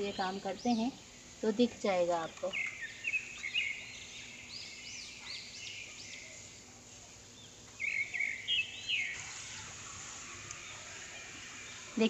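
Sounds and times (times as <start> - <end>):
small birds chirping: 0.0 - 12.0
spray bottle hissing: 9.2 - 12.0.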